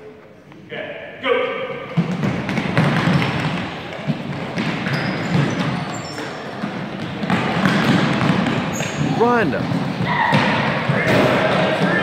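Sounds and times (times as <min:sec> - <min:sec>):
shoe soles squeaking: 0:04.2 - 0:07.9, 0:08.6 - 0:10.3.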